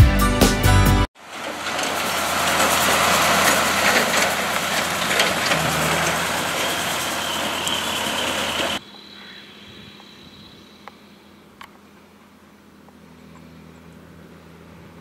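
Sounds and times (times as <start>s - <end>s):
tractor and baler running: 1.2s - 8.8s
distant engine hum: 1.2s - 15.0s
faint high whine: 1.4s - 14.8s.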